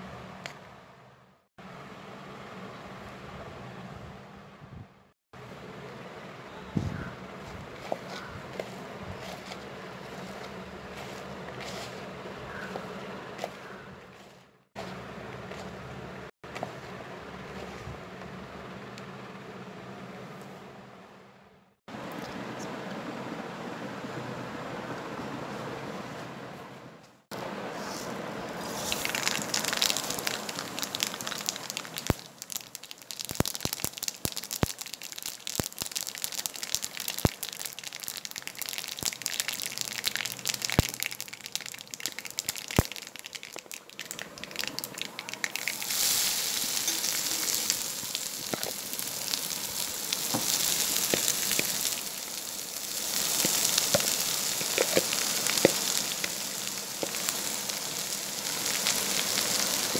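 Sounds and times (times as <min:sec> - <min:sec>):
frying sizzle in a pan: 0:07.8 - 0:13.8, 0:28.6 - 0:59.9
seeds popping in hot oil: 0:28.6 - 0:59.9.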